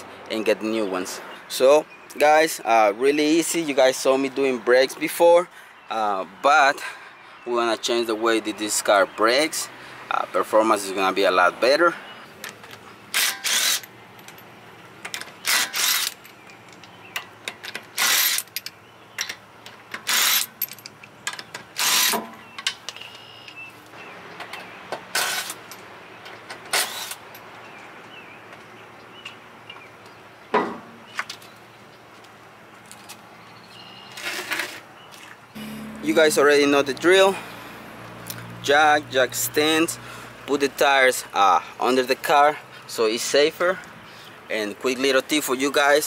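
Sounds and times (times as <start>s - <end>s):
impact wrench bursts: 13.1s - 13.9s, 15.4s - 16.2s, 17.9s - 18.6s, 20.0s - 20.6s, 21.8s - 22.3s.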